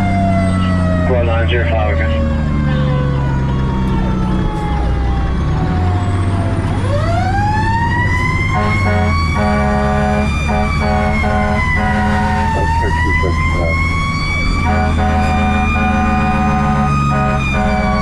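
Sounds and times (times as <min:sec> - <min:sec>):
fire truck siren wailing: 0:00.0 - 0:18.0
truck engine running: 0:00.0 - 0:18.0
truck horn blasts: 0:08.5 - 0:13.8, 0:14.6 - 0:18.0.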